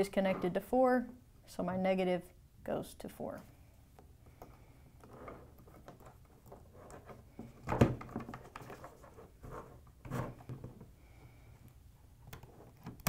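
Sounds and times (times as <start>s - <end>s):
tools clicking and knocking on plastic: 4.0s - 8.8s.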